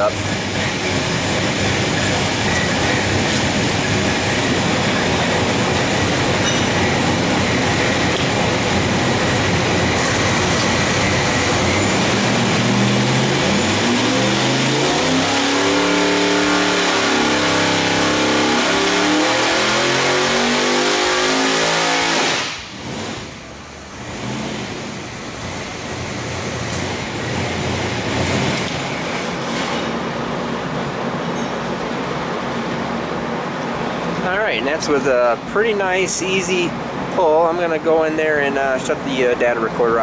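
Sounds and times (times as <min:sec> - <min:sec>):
engine idling: 0:00.0 - 0:19.4
engine revving at full throttle: 0:00.0 - 0:28.9.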